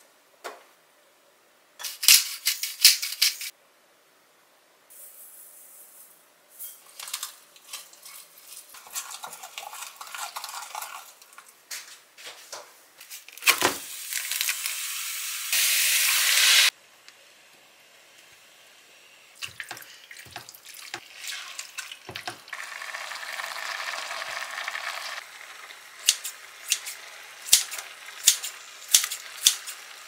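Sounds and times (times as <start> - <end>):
water pouring: 8.7 - 11.4, 19.4 - 25.8
pork hissing in a pan: 13.8 - 16.8, 22.5 - 30.0.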